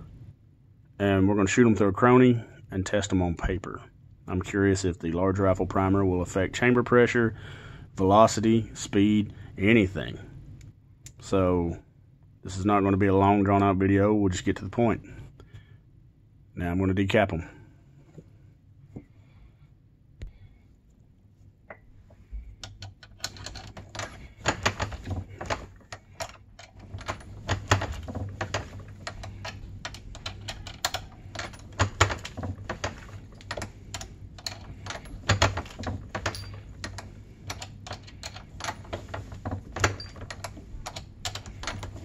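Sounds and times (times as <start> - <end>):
metallic clicks and clinks: 22.6 - 42.0.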